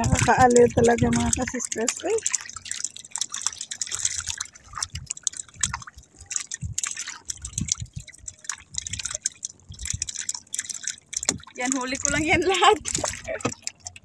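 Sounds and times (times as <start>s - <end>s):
water splashing and dripping: 0.0s - 14.0s.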